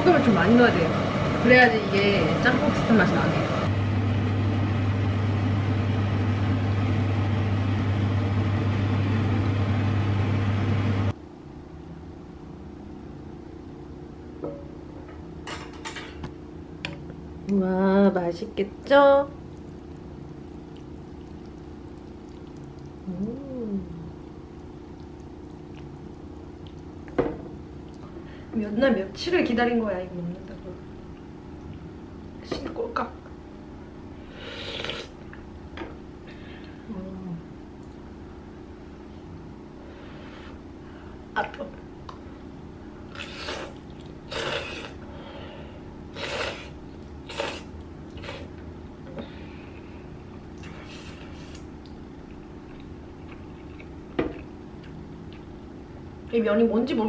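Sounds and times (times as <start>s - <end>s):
low electrical hum: 0.0s - 57.0s
woman humming: 23.0s - 24.2s, 36.8s - 37.5s
person slurping noodles: 34.4s - 35.2s, 43.1s - 45.0s, 46.1s - 48.5s.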